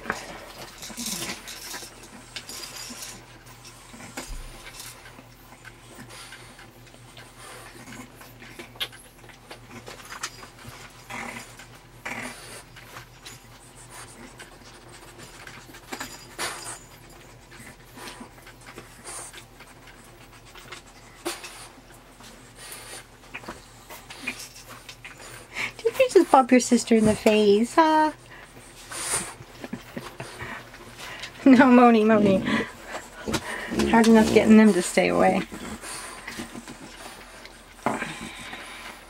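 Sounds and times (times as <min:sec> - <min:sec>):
puppies scuffling on a blanket: 0:00.0 - 0:39.0.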